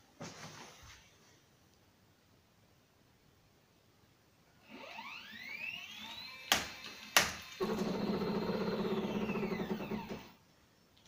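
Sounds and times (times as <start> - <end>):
stepper motor whine: 4.7 - 10.3.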